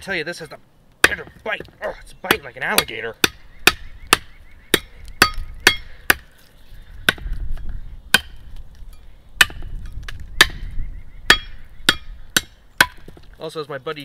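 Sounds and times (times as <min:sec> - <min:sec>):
knife chopping into vine: 0:08.1 - 0:08.4.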